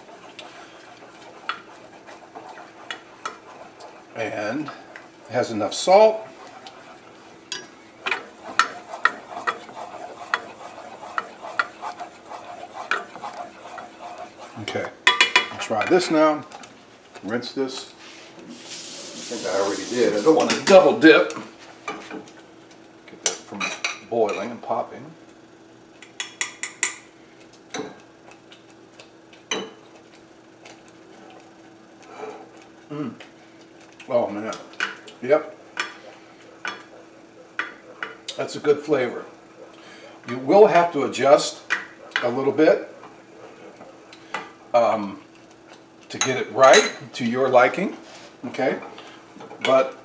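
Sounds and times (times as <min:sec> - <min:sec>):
wooden spoon scraping a saucepan: 0:00.0 - 0:22.3, 0:34.2 - 0:50.0
faint steady hum: 0:00.0 - 0:50.0.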